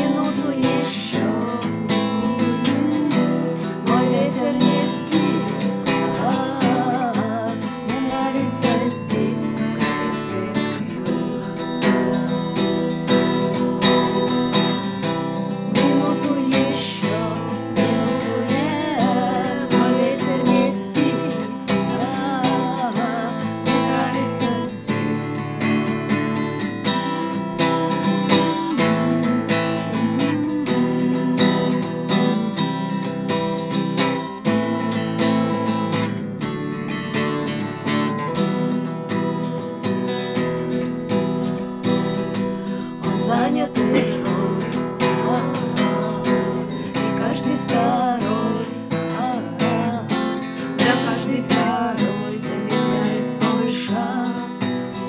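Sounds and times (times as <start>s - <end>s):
women singing together: 0.0s - 25.8s, 28.2s - 32.7s, 43.0s - 55.0s
acoustic guitar strummed: 0.0s - 55.0s.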